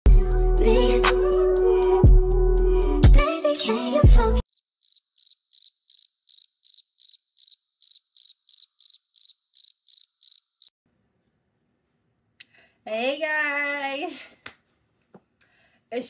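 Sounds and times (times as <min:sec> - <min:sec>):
crickets chirping: 0:04.4 - 0:10.7.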